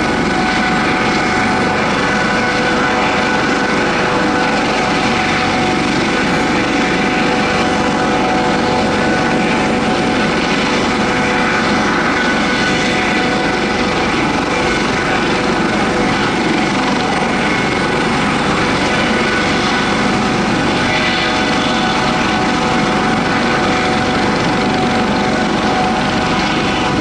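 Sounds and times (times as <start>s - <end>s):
propeller aircraft engine drone: 0.0s - 27.0s.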